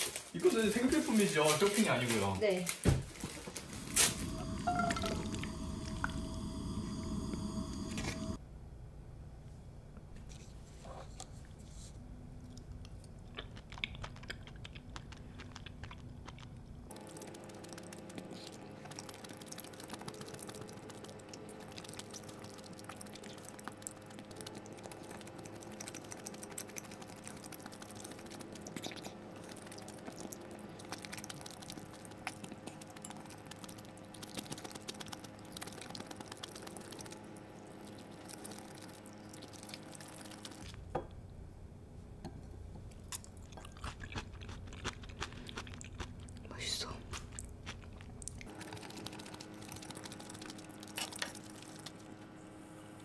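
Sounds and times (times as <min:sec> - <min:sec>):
faint steady hum: 0:03.0 - 0:53.0
person chewing food: 0:12.4 - 0:40.8, 0:42.6 - 0:52.2.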